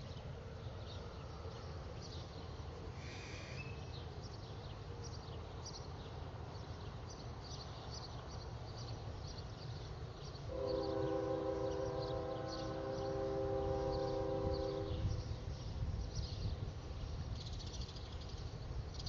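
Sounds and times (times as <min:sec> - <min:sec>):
small birds chirping: 0:00.0 - 0:19.0
loud multi-note horn: 0:10.5 - 0:15.2.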